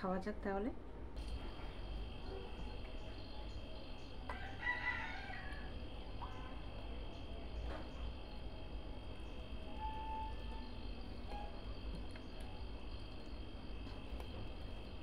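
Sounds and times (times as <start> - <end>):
insects chirring: 1.2 - 15.0
rooster crowing: 4.3 - 6.4.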